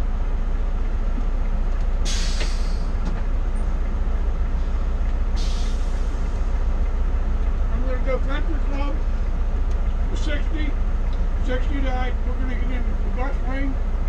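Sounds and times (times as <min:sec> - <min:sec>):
diesel engine idling: 0:00.0 - 0:14.0
air brake hiss: 0:02.0 - 0:03.0, 0:05.4 - 0:06.4.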